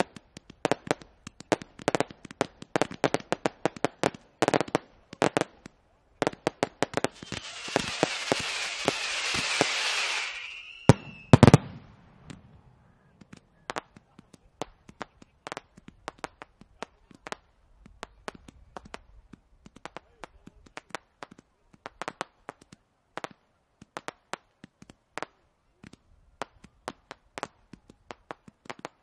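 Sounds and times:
fireworks bangs and crackling: 0:00.0 - 0:29.0
heavy firework booms: 0:06.8 - 0:14.0.

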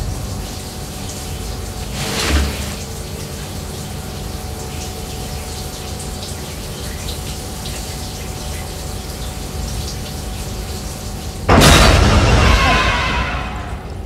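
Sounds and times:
water running: 0:00.0 - 0:14.0.

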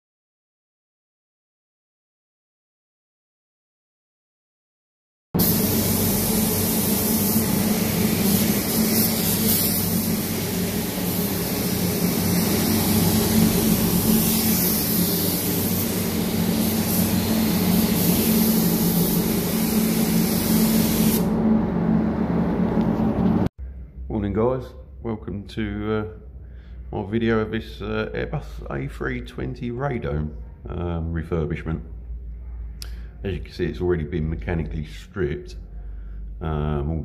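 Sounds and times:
paint spray gun hissing: 0:05.4 - 0:21.3
steady low hum: 0:05.4 - 0:37.0.

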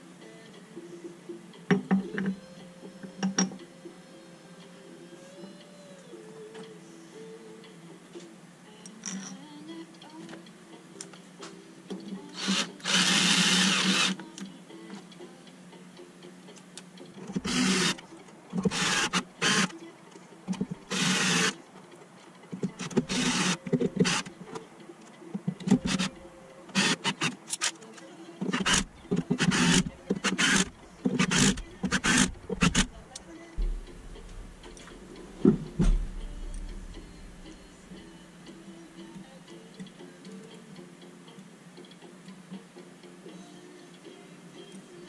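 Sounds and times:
electric screwdriver driving screws: 0:12.4 - 0:14.2, 0:17.4 - 0:18.0, 0:18.6 - 0:19.7, 0:20.9 - 0:21.6, 0:22.9 - 0:24.2, 0:25.7 - 0:26.1, 0:26.8 - 0:27.8, 0:28.5 - 0:33.0.

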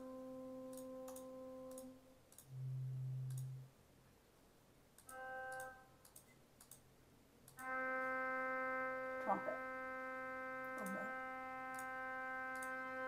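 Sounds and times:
soft mouse clicks: 0:00.7 - 0:02.5, 0:03.2 - 0:03.6, 0:05.0 - 0:07.6
pipe organ sustained note: 0:07.6 - 0:13.0.

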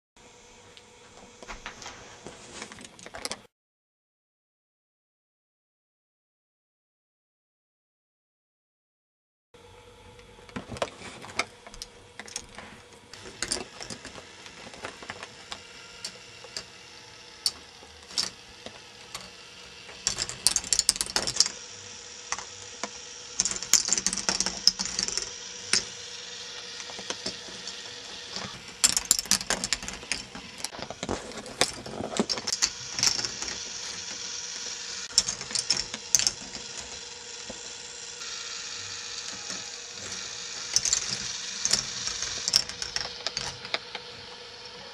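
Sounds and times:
faint motor hum: 0:00.2 - 0:03.5, 0:09.6 - 0:44.9
plastic balls clattering on tracks: 0:17.3 - 0:21.6, 0:22.3 - 0:26.0, 0:26.6 - 0:37.7, 0:39.2 - 0:44.1.

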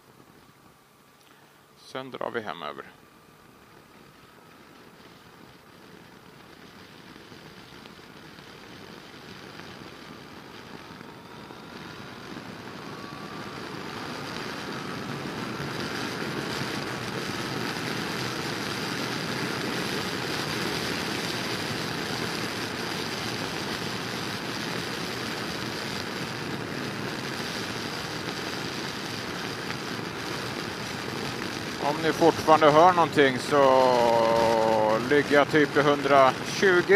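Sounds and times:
rising engine whine: 0:00.0 - 0:36.9
motorcycle engine: 0:10.6 - 0:22.3.

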